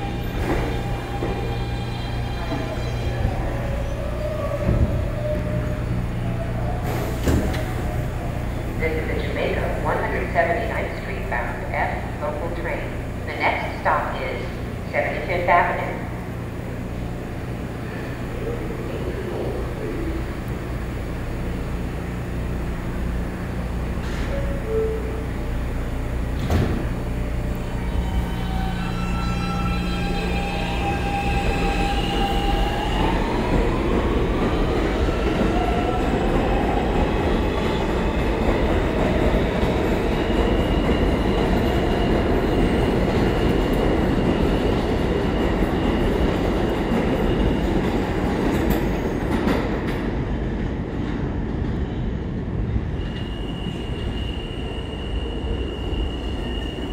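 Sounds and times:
train wheels rumbling on rails: 0.0s - 56.9s
high wheel squeal: 52.9s - 56.9s.

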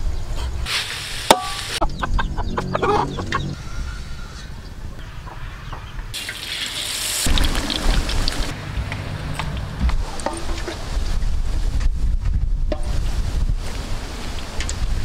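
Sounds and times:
hiss: 0.6s - 1.8s
chickens clucking: 1.3s - 4.5s.

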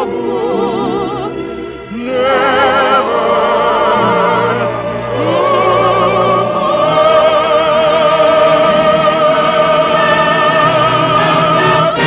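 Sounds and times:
operatic singing: 0.0s - 12.0s
orchestra with brass: 0.0s - 12.0s.

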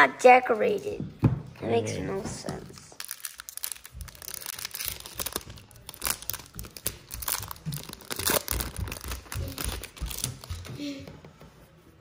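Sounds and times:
foil wrapper crinkling and tearing: 3.0s - 10.5s.

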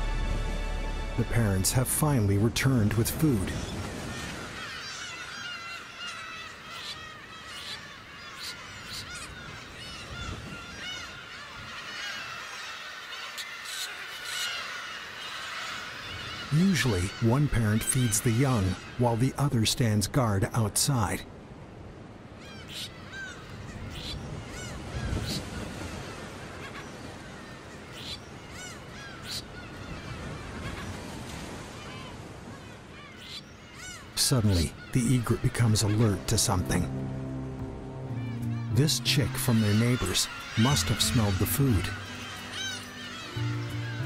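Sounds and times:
birds chirping: 0.4s - 21.2s, 22.4s - 44.0s
bird squawks: 3.5s - 19.2s, 22.4s - 31.0s, 31.7s - 36.8s, 38.3s - 44.0s
chicks begging calls: 3.8s - 19.2s, 38.2s - 44.0s.

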